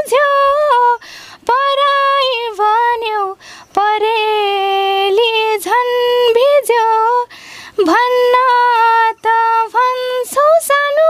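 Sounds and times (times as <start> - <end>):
woman singing unaccompanied: 0.0 - 11.0
quick breath: 1.0 - 1.4, 3.4 - 3.7, 7.3 - 7.8.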